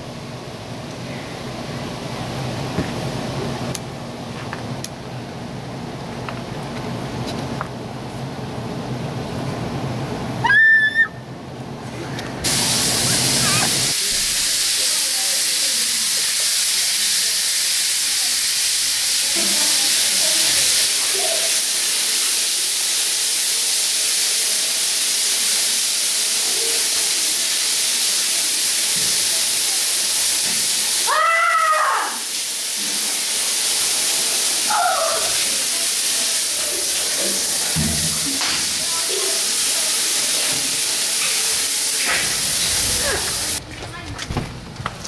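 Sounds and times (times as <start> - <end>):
running shower hiss: 12.4 - 43.6
high-pitched voice squealing: 34.7 - 35.4.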